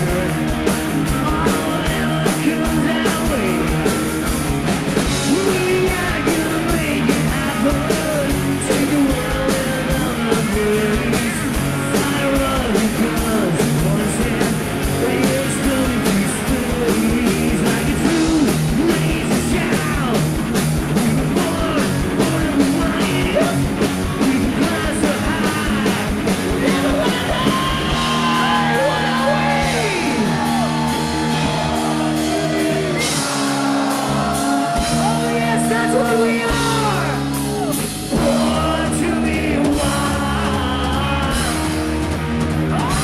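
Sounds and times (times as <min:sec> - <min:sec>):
man singing into microphone: 0:00.0 - 0:00.5, 0:01.1 - 0:03.9, 0:05.2 - 0:20.3, 0:20.9 - 0:30.3, 0:34.6 - 0:37.2, 0:38.1 - 0:41.7
drum beat: 0:00.0 - 0:43.0
electric bass: 0:00.0 - 0:43.0
electric guitar: 0:00.0 - 0:43.0.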